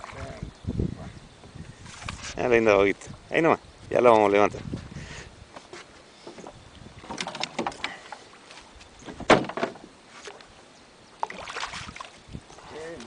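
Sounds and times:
fish splashing at water surface: 11.2 - 12.2.

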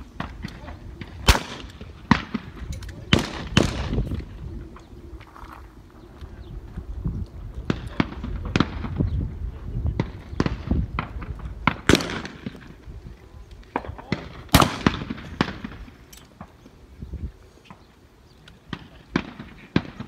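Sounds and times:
shotgun shots with echo: 0.2 - 4.0, 10.0 - 12.7, 13.8 - 15.9.

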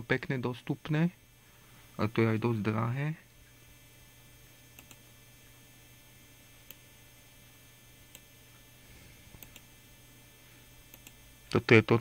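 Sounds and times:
faint mains hum: 0.0 - 12.0
computer mouse clicks: 4.7 - 5.0, 6.6 - 6.8, 9.4 - 9.7, 10.9 - 11.2.

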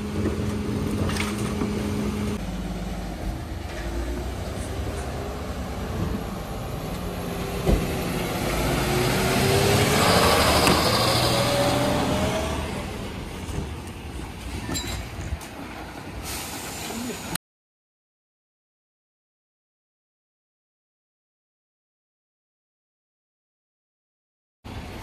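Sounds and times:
rising whine: 0.0 - 13.2
truck engine running: 0.0 - 14.5
brief hiss: 16.2 - 17.4.

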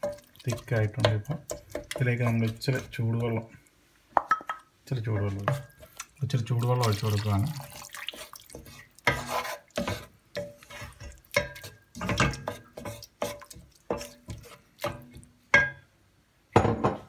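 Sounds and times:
spatula scraping and knocking pot: 0.0 - 3.6, 4.2 - 6.1, 8.1 - 15.8.

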